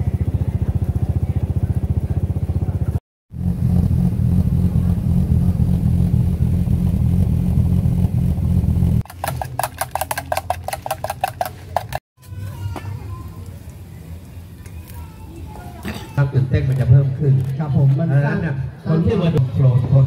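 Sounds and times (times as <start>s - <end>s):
off-road engine running: 0.0s - 12.0s.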